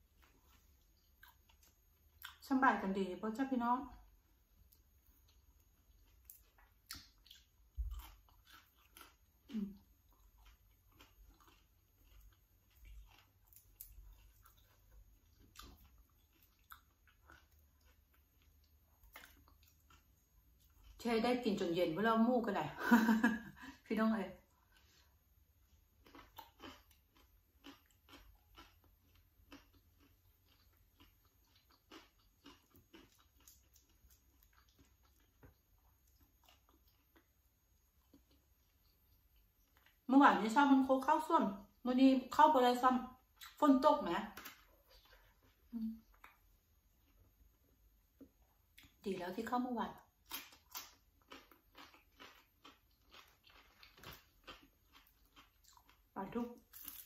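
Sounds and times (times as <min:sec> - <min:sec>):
person chewing: 0:00.0 - 0:02.4, 0:04.6 - 0:21.0, 0:24.5 - 0:40.0, 0:44.4 - 0:49.0, 0:50.0 - 0:57.0
wet mouth clicks: 0:06.3 - 0:07.5.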